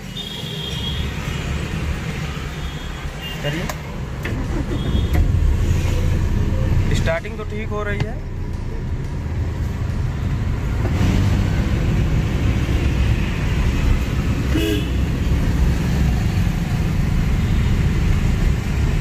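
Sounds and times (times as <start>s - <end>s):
road noise: 0.0s - 19.0s
diesel engine droning: 4.2s - 14.2s
car horn toot: 14.5s - 15.0s.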